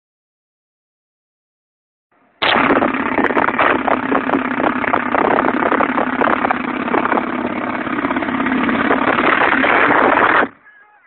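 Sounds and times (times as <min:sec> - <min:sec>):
autocannon firing rapid bursts: 0:02.4 - 0:10.6.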